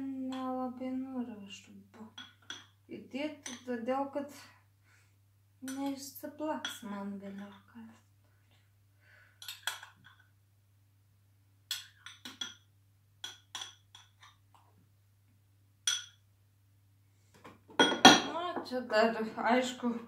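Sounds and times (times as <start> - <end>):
metal spoon clinking on ceramic bowl: 2.1 - 2.8, 11.7 - 14.3, 15.8 - 16.2.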